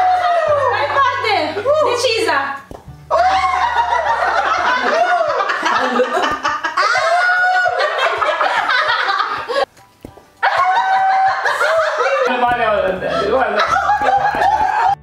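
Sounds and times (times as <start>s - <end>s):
background music: 0.0s - 15.0s
group of people laughing: 3.2s - 9.7s, 10.4s - 15.0s.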